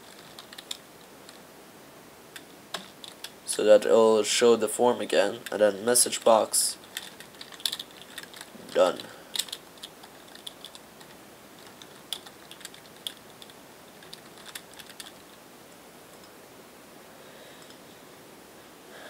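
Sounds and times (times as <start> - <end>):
typing on computer keyboard: 6.9 - 15.2.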